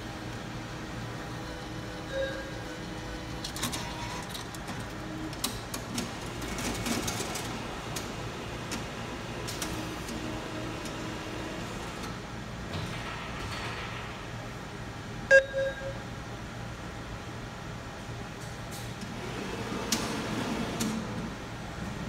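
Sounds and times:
cash machine whirring and clicking: 0:01.4 - 0:14.2, 0:18.7 - 0:21.9.

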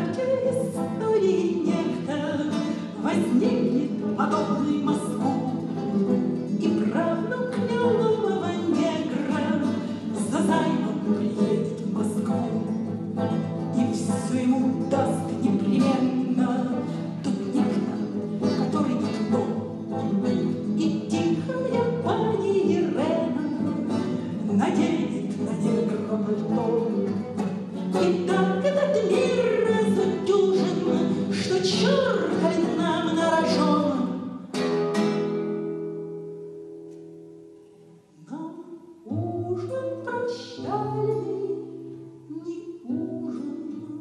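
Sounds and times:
woman singing: 0:00.0 - 0:34.4, 0:38.2 - 0:44.0
classical guitar: 0:00.0 - 0:44.0.

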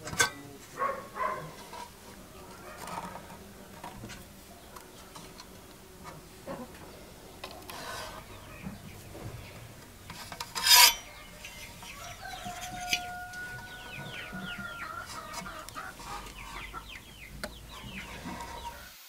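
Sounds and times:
birds chirping: 0:00.0 - 0:19.0
paper sheet scraping: 0:07.4 - 0:09.4.

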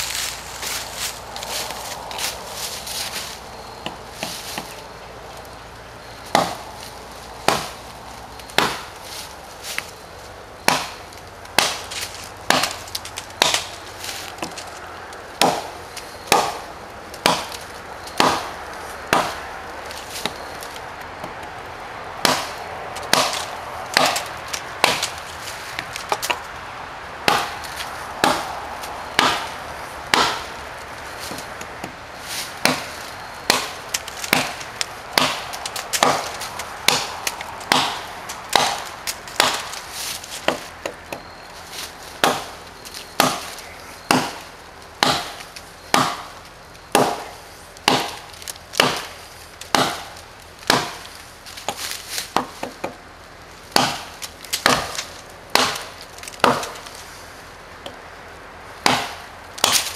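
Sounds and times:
axe chopping into log: 0:06.3 - 0:06.7, 0:07.4 - 0:07.8, 0:08.6 - 0:08.9, 0:10.6 - 0:12.8, 0:13.4 - 0:13.7, 0:15.4 - 0:16.6, 0:17.2 - 0:17.6, 0:18.2 - 0:18.5, 0:19.1 - 0:19.4, 0:22.2 - 0:25.2, 0:27.2 - 0:27.6, 0:28.2 - 0:28.6, 0:29.2 - 0:30.5, 0:32.6 - 0:39.8, 0:40.4 - 0:41.3, 0:42.2 - 0:42.6, 0:43.2 - 0:44.4, 0:45.0 - 0:46.3, 0:46.9 - 0:51.0, 0:51.6 - 0:53.0, 0:53.7 - 0:56.8, 0:58.8 - 0:59.9.

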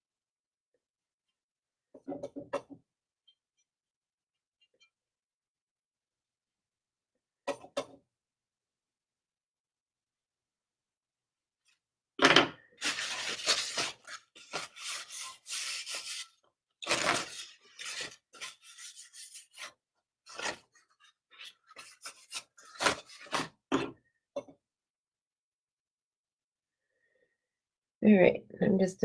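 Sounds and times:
brush scratching on pottery: 0:12.8 - 0:16.4, 0:17.0 - 0:23.2.

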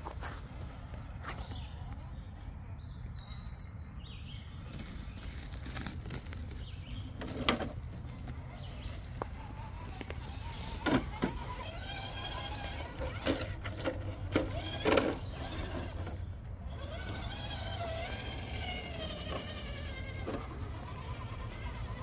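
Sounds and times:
electric motor and gear whine: 0:04.6 - 0:22.0.

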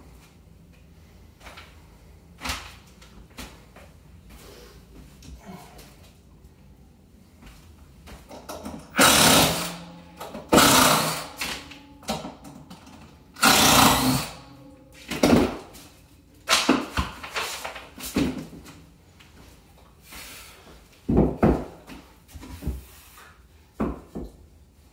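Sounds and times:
cordless drill running: 0:09.0 - 0:09.8, 0:10.5 - 0:11.4, 0:13.4 - 0:14.4.

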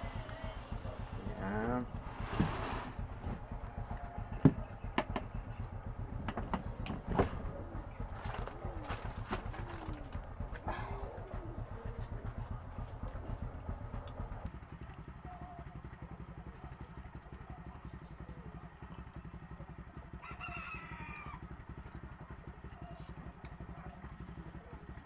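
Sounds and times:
low pulsing rumble: 0:00.0 - 0:25.0
rooster crowing: 0:20.2 - 0:21.4.

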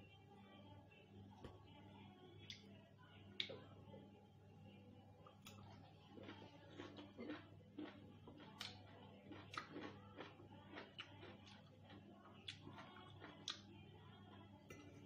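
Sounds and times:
chewing and wet mouth sounds: 0:03.4 - 0:03.6, 0:05.2 - 0:13.8.

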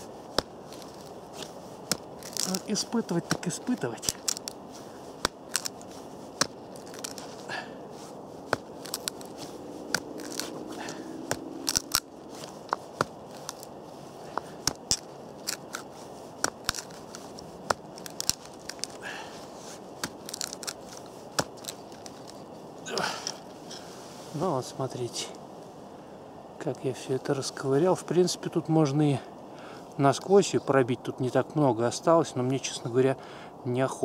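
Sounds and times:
wood splitting and crunching: 0:00.0 - 0:23.9
knife cracking into wooden board: 0:09.9 - 0:12.1, 0:14.4 - 0:19.0.

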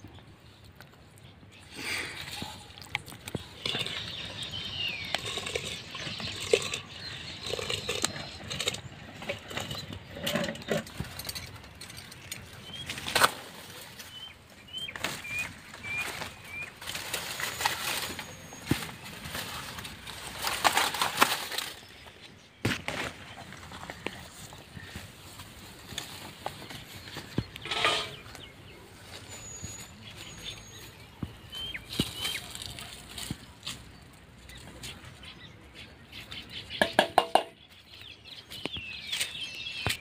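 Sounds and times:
bird chirps: 0:03.3 - 0:13.0, 0:26.5 - 0:33.4, 0:34.0 - 0:40.0
banana leaves rustling and tearing: 0:14.9 - 0:22.1, 0:32.0 - 0:34.0.

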